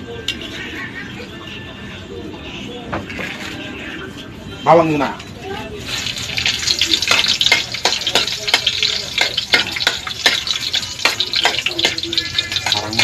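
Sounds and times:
garlic sizzling in hot oil: 0:05.8 - 0:13.0.

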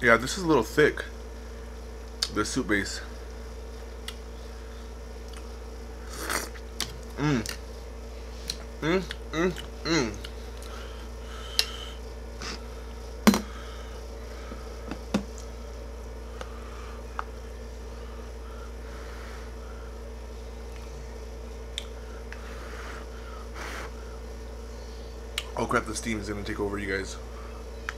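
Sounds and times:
steady low hum: 0:00.0 - 0:27.9
soft eating noises: 0:03.7 - 0:13.1.

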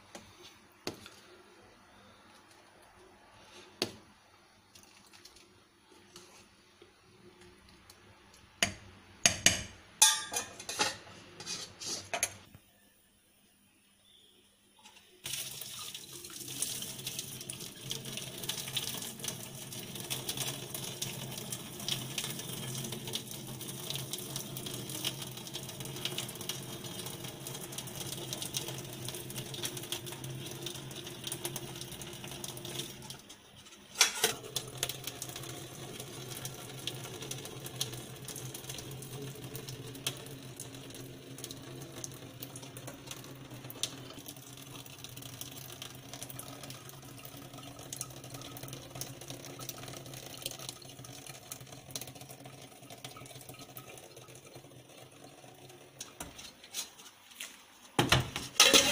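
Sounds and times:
metal spoon clinking against pot: 0:09.3 - 0:12.4
pot and lid clattering: 0:09.3 - 0:12.4, 0:33.7 - 0:34.4, 0:58.1 - 0:58.9
liquid pouring into metal sink: 0:15.2 - 0:56.5.

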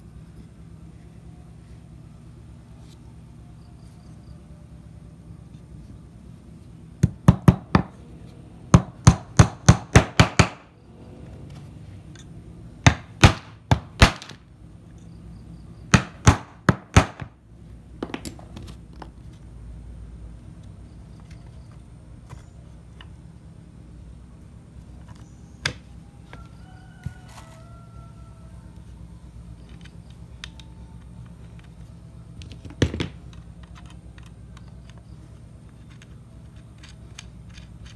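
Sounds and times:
hammer knocking nails into wood: 0:07.0 - 0:07.9, 0:08.8 - 0:10.6, 0:15.9 - 0:17.4.

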